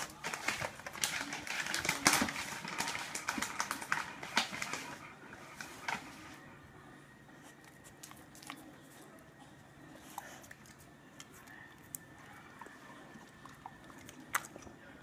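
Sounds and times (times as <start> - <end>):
dog chewing a toy: 0.0 - 6.4.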